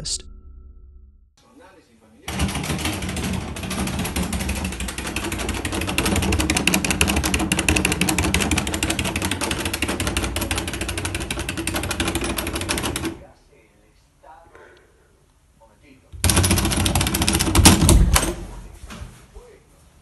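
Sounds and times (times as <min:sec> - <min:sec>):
door rattling in its frame: 0:02.3 - 0:13.2, 0:16.2 - 0:18.7.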